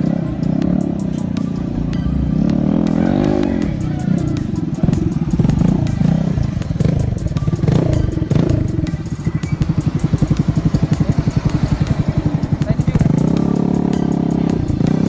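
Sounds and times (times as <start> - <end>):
scooter engine revving and idling: 0.0 - 15.0.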